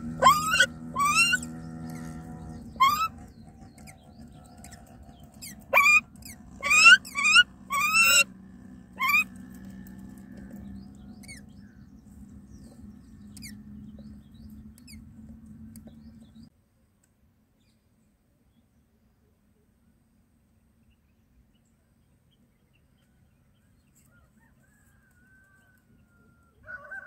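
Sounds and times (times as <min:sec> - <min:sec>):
birds squawking: 0:00.0 - 0:08.3, 0:08.9 - 0:09.4
low steady hum: 0:00.0 - 0:16.5.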